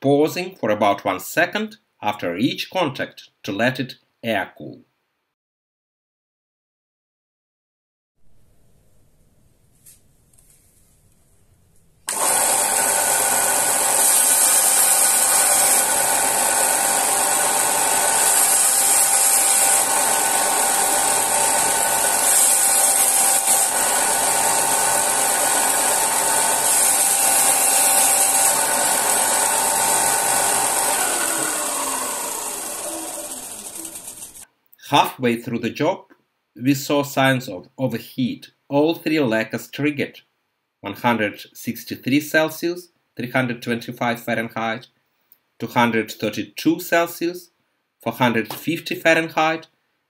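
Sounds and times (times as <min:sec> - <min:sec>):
belt sander running: 0:12.1 - 0:34.4.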